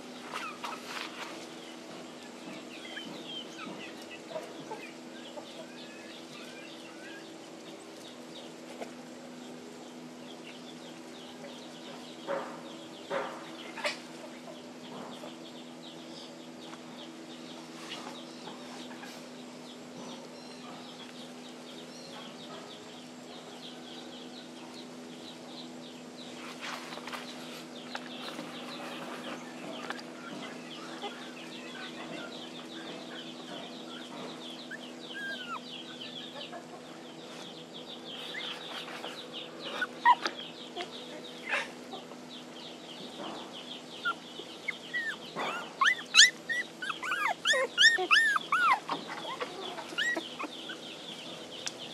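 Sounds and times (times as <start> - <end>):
steady low hum: 0.0 - 51.9
puppies whimpering and yelping: 0.2 - 1.2, 2.3 - 7.6, 26.9 - 37.4, 38.0 - 42.0, 43.7 - 51.9
faint high chirping: 28.2 - 51.9.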